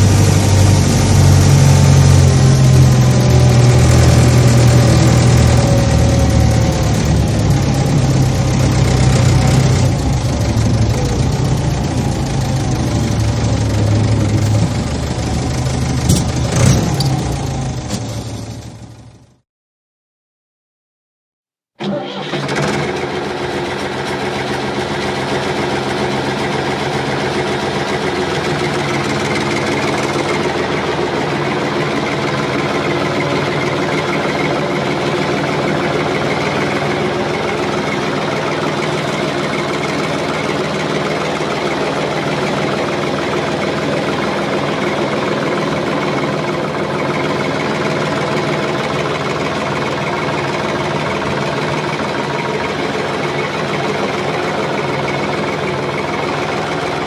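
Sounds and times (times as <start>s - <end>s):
motor running steadily: 0.0s - 17.8s, 22.8s - 57.0s.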